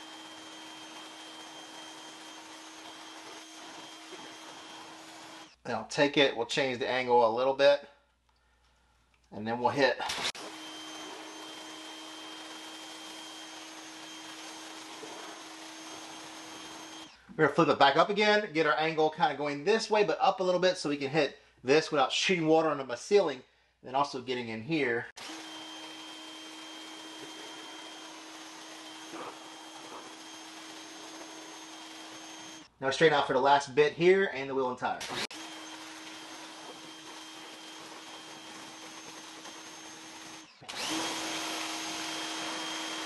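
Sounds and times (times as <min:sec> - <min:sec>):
electric motor hum: 0:00.0 - 0:05.6, 0:10.2 - 0:17.2, 0:25.2 - 0:32.7, 0:35.0 - 0:43.0.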